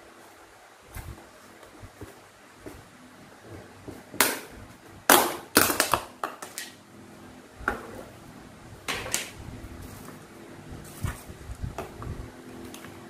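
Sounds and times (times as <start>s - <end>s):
plastic tubs clicking and crackling: 5.1s - 6.8s.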